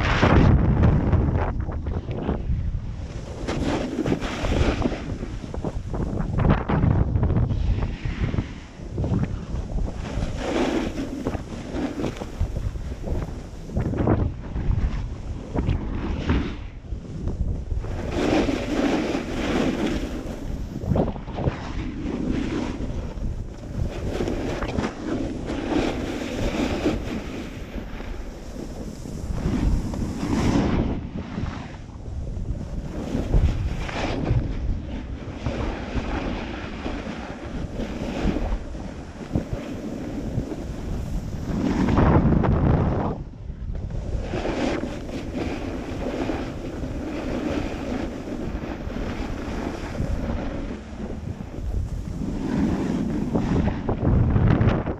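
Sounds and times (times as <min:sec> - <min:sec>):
snowboard scraping over snow: 0:00.0 - 0:54.9
wind buffeting microphone: 0:00.0 - 0:54.9.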